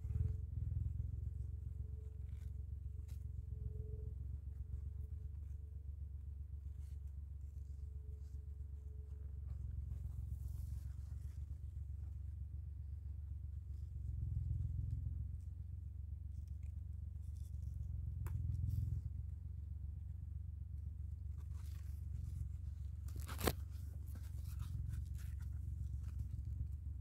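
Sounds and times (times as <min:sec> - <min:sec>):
steady low rumble: 0:00.0 - 0:27.0
leaf rustling: 0:21.4 - 0:26.7
stem snapping by hand: 0:23.1 - 0:23.8.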